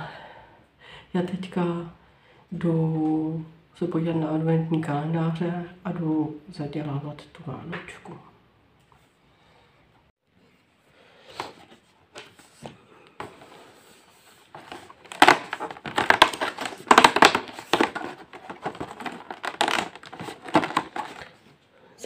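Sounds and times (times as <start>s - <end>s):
thin card tearing and crackling: 14.5s - 21.4s.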